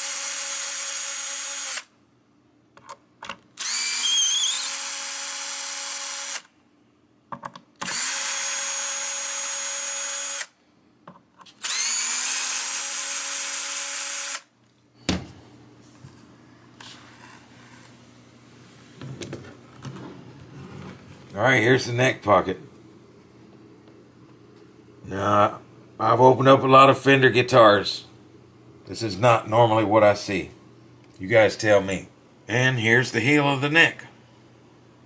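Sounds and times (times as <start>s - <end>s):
faint handling noise: 14.6s - 21.5s.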